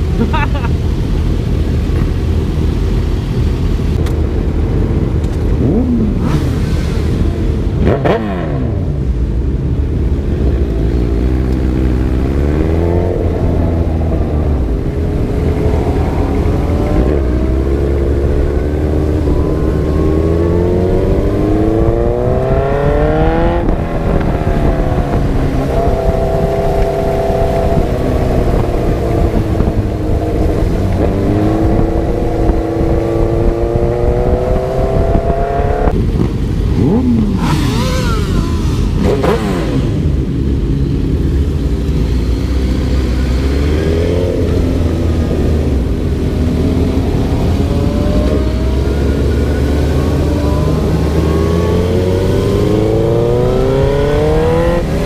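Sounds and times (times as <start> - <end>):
wind rushing on microphone: 0.0 - 42.0
motorcycle engine accelerating: 4.1 - 55.0.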